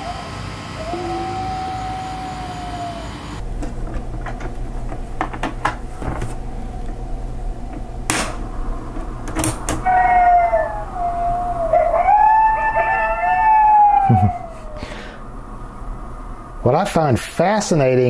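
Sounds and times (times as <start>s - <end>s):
coyote howls over loudspeaker: 0.0s - 3.4s, 9.8s - 15.0s
sharp clicks and knocks: 3.5s - 7.0s.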